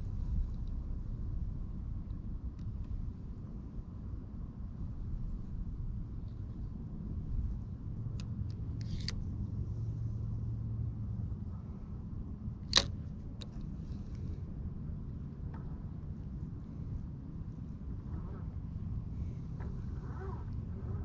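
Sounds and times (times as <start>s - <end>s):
low steady rumble: 0.0s - 21.0s
fishing reel clicks: 8.8s - 9.2s, 12.7s - 13.5s.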